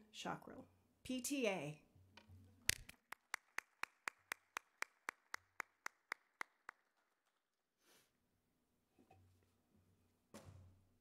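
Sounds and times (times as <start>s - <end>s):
fainter clapping: 2.7s - 7.1s
hands clapping: 2.7s - 7.2s.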